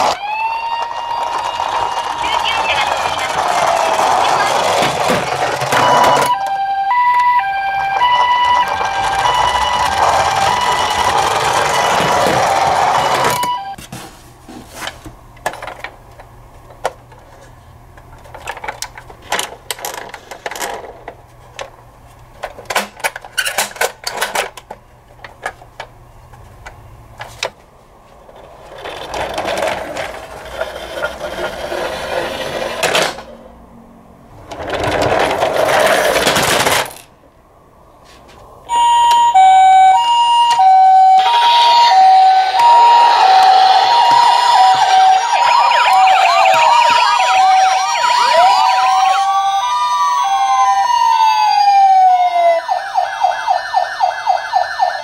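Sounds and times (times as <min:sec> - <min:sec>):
toy wheels rumbling on wood: 0:00.0 - 0:06.4, 0:07.1 - 0:13.6, 0:28.2 - 0:33.4, 0:34.4 - 0:37.1
plastic toys clicking and knocking: 0:00.0 - 0:13.6, 0:15.4 - 0:17.1, 0:18.0 - 0:27.6, 0:28.3 - 0:33.3, 0:34.4 - 0:37.1
electronic toy siren: 0:00.0 - 0:13.8, 0:38.7 - 0:55.0.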